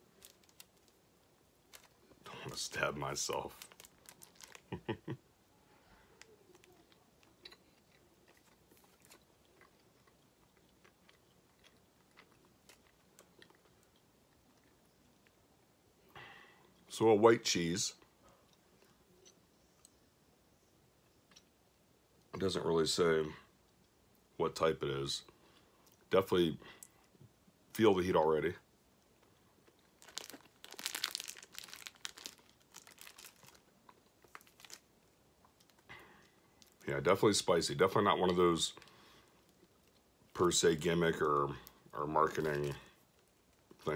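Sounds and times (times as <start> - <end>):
plastic packaging crinkling: 0.0 - 1.0, 1.7 - 5.0, 29.8 - 35.0, 42.2 - 42.8.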